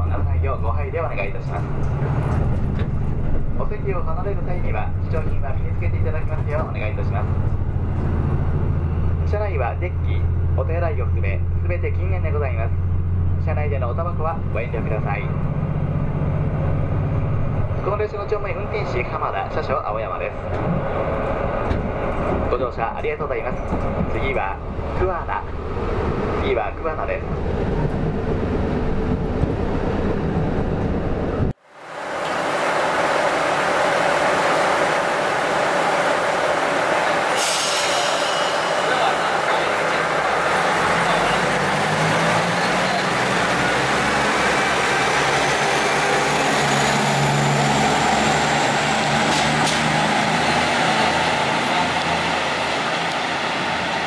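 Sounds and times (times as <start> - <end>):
diesel railcar engine drone: 0.0 - 54.0
rising engine whine: 0.0 - 54.0
train interior rumble: 0.0 - 54.0
hissing train noise: 31.6 - 54.0.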